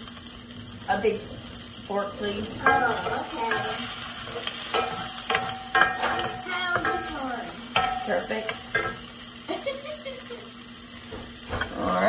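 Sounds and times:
sausage sizzling in skillet: 0.0 - 12.0
fork clinking against cookware: 2.6 - 9.0.

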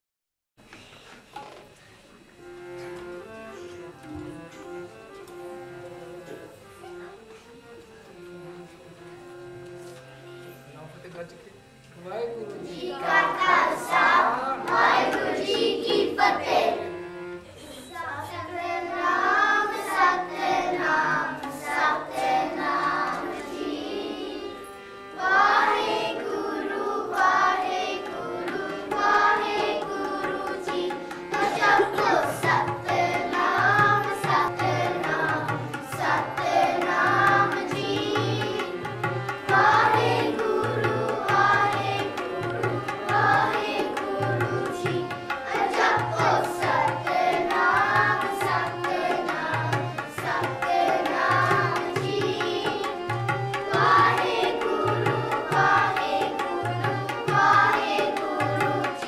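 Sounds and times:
harmonium: 0.6 - 59.0
children singing: 12.6 - 59.0
tabla beat: 14.6 - 16.6, 27.4 - 59.0.

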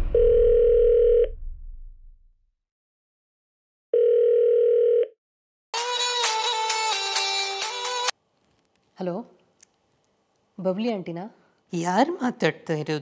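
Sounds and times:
telephone ringback tone: 0.0 - 1.3, 4.0 - 5.2
music: 5.8 - 8.1.

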